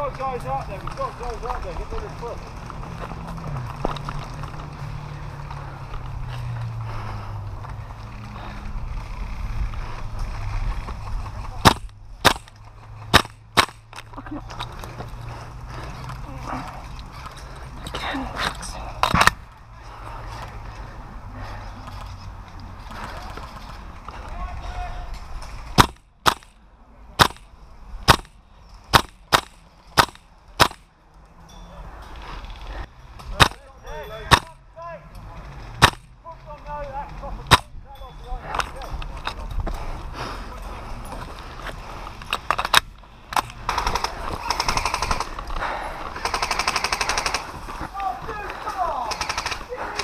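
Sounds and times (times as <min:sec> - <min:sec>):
airsoft rifle shots: 0:11.6 - 0:13.9, 0:25.8 - 0:26.5, 0:27.2 - 0:27.5, 0:28.1 - 0:30.9, 0:33.4 - 0:33.6, 0:34.3 - 0:34.6, 0:35.8 - 0:36.1, 0:37.5 - 0:37.7, 0:43.6 - 0:45.3, 0:46.2 - 0:47.4, 0:49.1 - 0:50.0
airsoft rifle firing full auto: 0:49.1 - 0:49.6
sharp clicks: 0:49.1 - 0:50.0.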